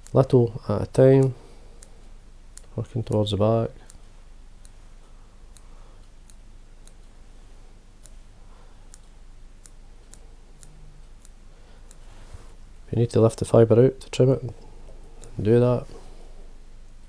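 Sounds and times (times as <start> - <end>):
scissors snipping hair: 1.1 - 4.8, 5.5 - 7.1, 8.9 - 12.1.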